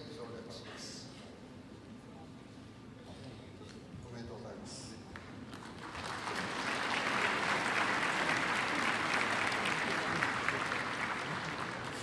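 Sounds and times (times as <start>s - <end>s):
large audience clapping: 5.2s - 12.0s.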